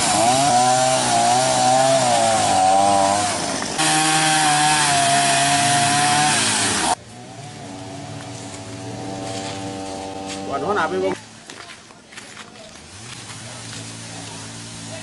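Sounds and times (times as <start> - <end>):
chainsaw cutting branches: 0.0 - 11.2
faint engine hum: 7.0 - 15.0.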